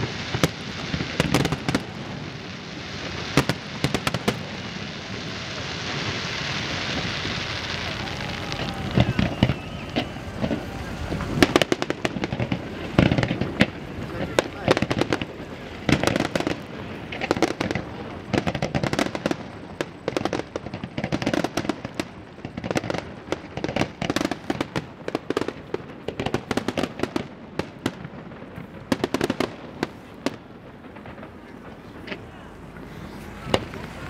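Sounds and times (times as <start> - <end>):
fireworks bangs: 0.0 - 34.0.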